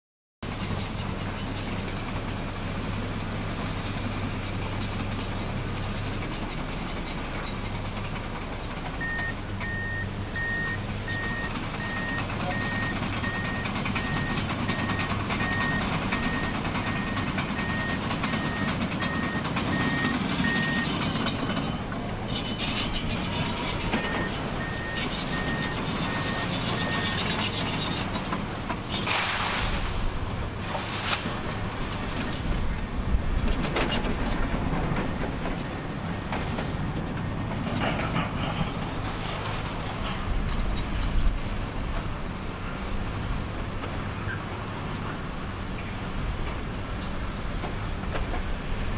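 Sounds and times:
tracks and blade clanking: 0:00.4 - 0:09.8, 0:10.8 - 0:48.9
bulldozer diesel engine: 0:00.4 - 0:48.9
reversing alarm beeping: 0:09.0 - 0:21.0, 0:23.8 - 0:27.2.

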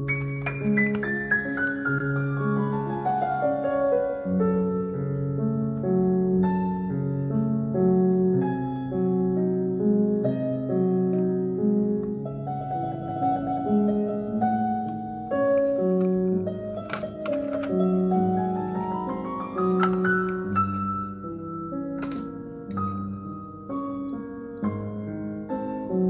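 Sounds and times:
slow piano music: 0:00.0 - 0:26.0.

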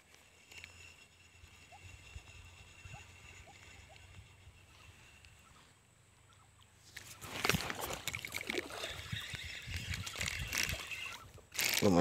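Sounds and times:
camera handling rustling and clattering: 0:06.9 - 0:08.6.

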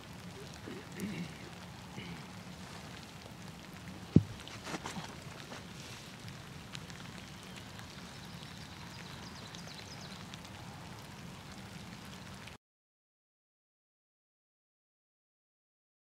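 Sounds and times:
steady rain falling: 0:00.0 - 0:12.6.

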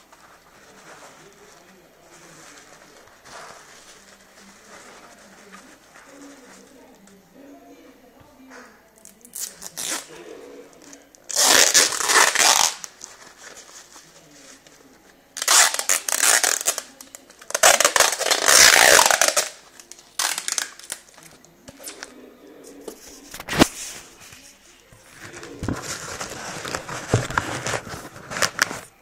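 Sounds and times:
hands rustling packing material: 0:00.0 - 0:07.1, 0:11.3 - 0:14.8, 0:15.4 - 0:21.4, 0:23.1 - 0:29.0.

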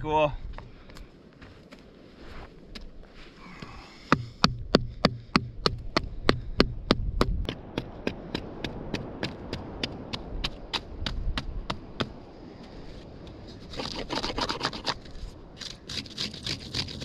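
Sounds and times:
knife chipping wood: 0:13.7 - 0:15.0, 0:15.6 - 0:17.0.

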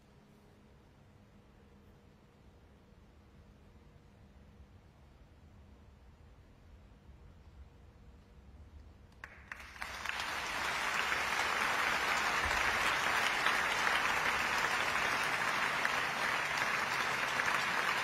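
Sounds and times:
concert audience applauding: 0:09.2 - 0:18.0.

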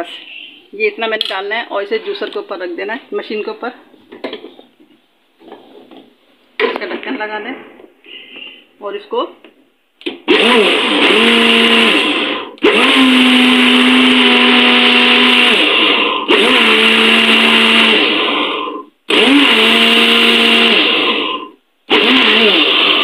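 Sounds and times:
blender motor running in pulses: 0:10.3 - 0:23.0.

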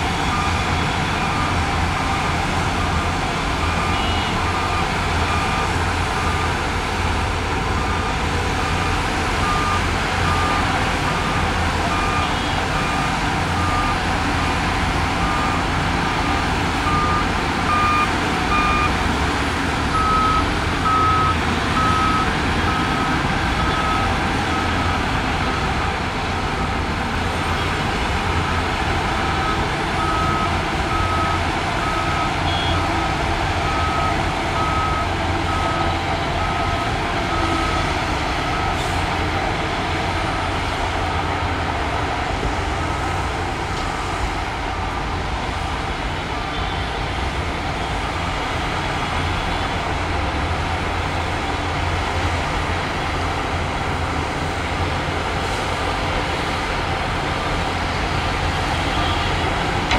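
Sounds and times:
reversing alarm beeping: 0:00.0 - 0:14.4, 0:15.0 - 0:19.0, 0:19.9 - 0:25.9, 0:29.2 - 0:39.0
diesel engine running: 0:00.0 - 0:59.9.

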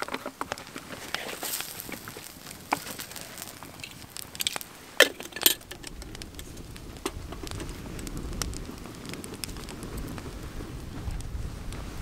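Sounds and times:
wood fire crackling: 0:00.0 - 0:12.0
low wind rumble: 0:00.6 - 0:12.0
metal kettle clinks: 0:04.4 - 0:06.0.

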